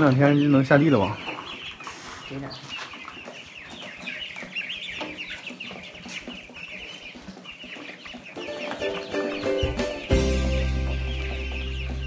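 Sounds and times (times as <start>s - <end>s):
ducklings peeping: 0.0s - 12.0s
music: 7.7s - 12.0s.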